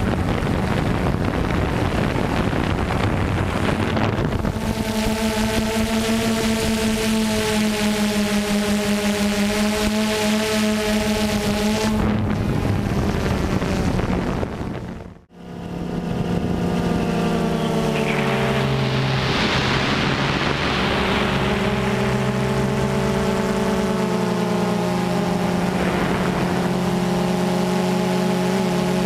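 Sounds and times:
drone motors humming: 0:00.0 - 0:29.0
rushing noise: 0:16.1 - 0:29.0.

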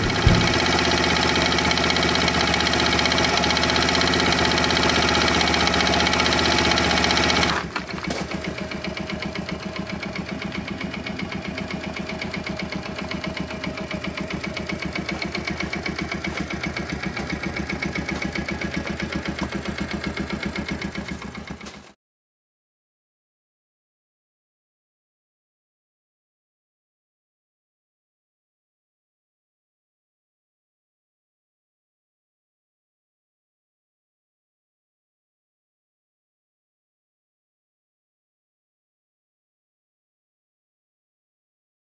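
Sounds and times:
small motorcycle engine running: 0:00.0 - 0:22.0.

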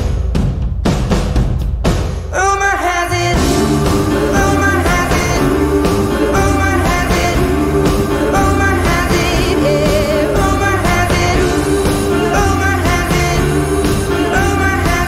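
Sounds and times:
person singing with vibrato: 0:02.3 - 0:15.0
pop-soul band playing: 0:03.1 - 0:15.0.

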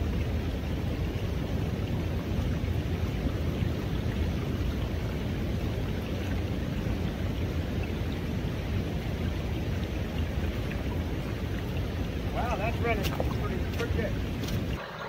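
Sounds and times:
water rushing through sluice: 0:00.0 - 0:15.0.

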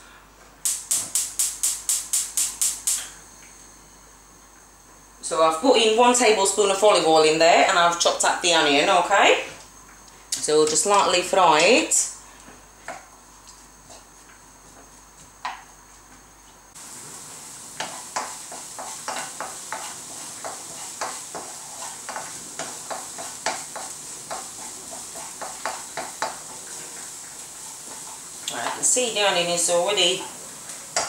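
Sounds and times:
onion sizzling in frying pan: 0:00.6 - 0:03.4, 0:16.8 - 0:31.0
wooden spatula scraping pan: 0:17.8 - 0:27.1.

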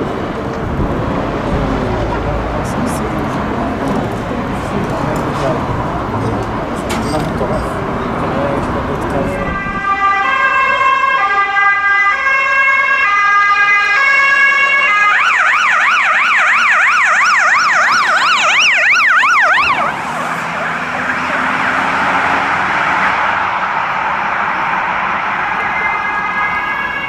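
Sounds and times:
car engine and tyre noise: 0:00.0 - 0:27.0
police siren yelp: 0:09.1 - 0:27.0.

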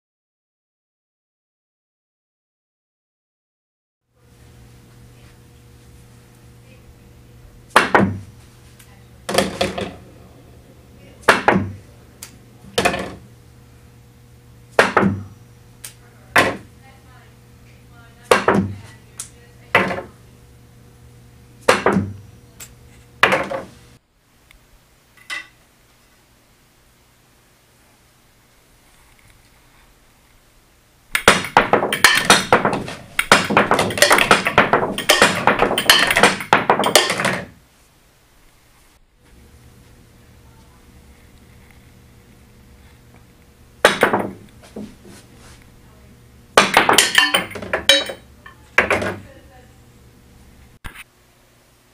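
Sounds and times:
pool ball clacking off rails: 0:07.7 - 0:08.6, 0:09.2 - 0:13.3, 0:14.7 - 0:16.7, 0:18.3 - 0:18.8, 0:19.7 - 0:20.2, 0:21.6 - 0:23.8, 0:31.1 - 0:37.6, 0:43.8 - 0:45.6, 0:46.5 - 0:49.4
pool cue striking ball: 0:07.7 - 0:08.6, 0:09.3 - 0:13.3, 0:14.7 - 0:15.4, 0:16.3 - 0:16.7, 0:18.3 - 0:18.8, 0:19.8 - 0:20.2, 0:21.6 - 0:22.2, 0:23.2 - 0:23.8, 0:31.2 - 0:37.6, 0:43.8 - 0:45.6, 0:46.6 - 0:49.3.

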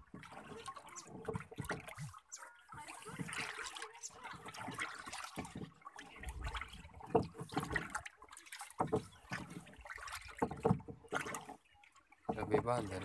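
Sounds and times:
liquid sloshing in plastic drum: 0:00.0 - 0:13.0.

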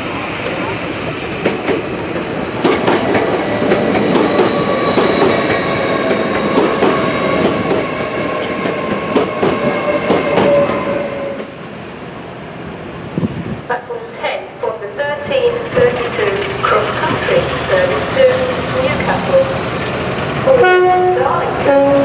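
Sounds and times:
train rumble: 0:00.0 - 0:22.0
wheels clacking over rail joints: 0:01.4 - 0:10.9.

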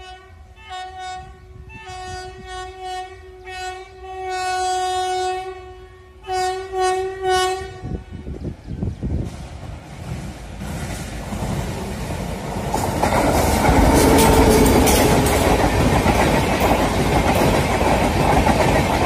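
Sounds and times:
train horn blasts: 0:00.0 - 0:08.4
low rumble of train: 0:00.0 - 0:19.0
loud rushing of passing train: 0:07.5 - 0:19.0.

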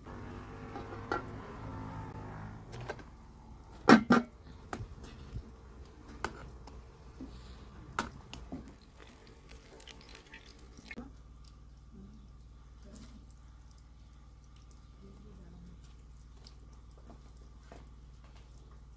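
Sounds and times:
ladle stirring a pot: 0:02.7 - 0:15.0.

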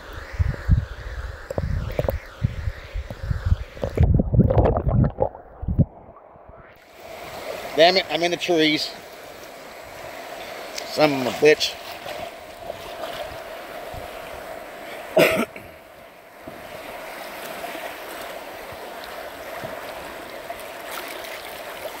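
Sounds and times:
river water rushing: 0:06.8 - 0:22.0.

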